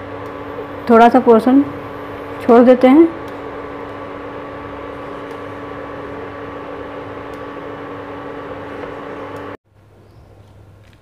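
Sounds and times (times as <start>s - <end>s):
electric motor hum: 0.0s - 9.6s.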